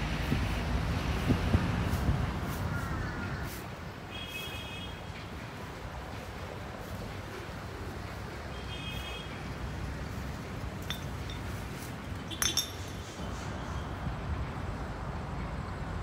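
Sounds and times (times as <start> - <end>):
sharp metallic clinks: 10.8 - 13.3.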